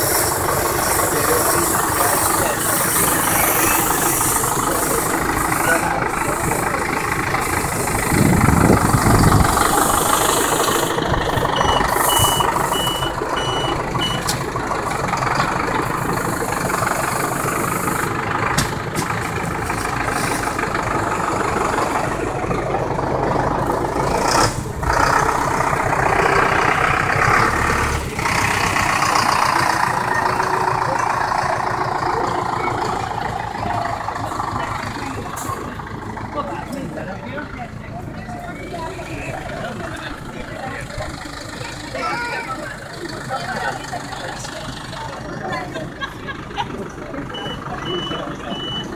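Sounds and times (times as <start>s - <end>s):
tractor engine running: 0.0s - 48.9s
short high beeps: 11.6s - 14.3s.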